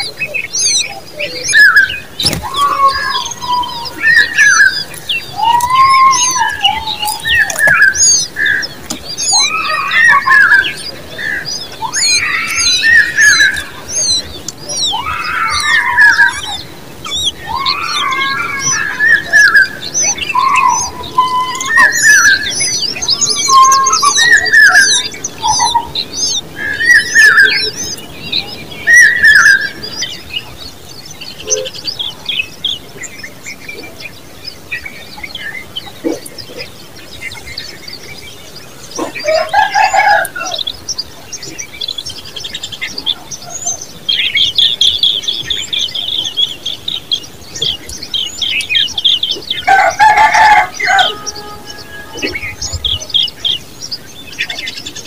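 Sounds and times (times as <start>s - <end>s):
harsh bird call: 0.0s - 30.5s, 42.7s - 55.0s
birds chirping: 0.0s - 55.0s.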